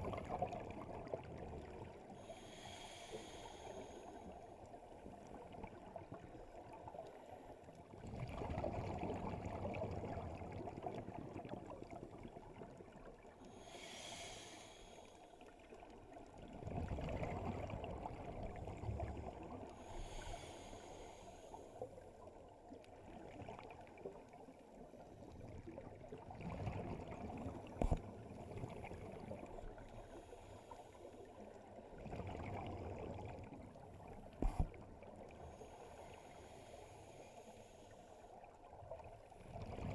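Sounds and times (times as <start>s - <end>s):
exhaled bubbles rumbling: 0.0s - 2.1s, 8.0s - 13.2s, 16.3s - 19.7s, 25.1s - 30.0s, 31.8s - 35.4s, 38.9s - 39.9s
regulator inhalation hiss: 2.3s - 4.2s, 13.6s - 15.1s.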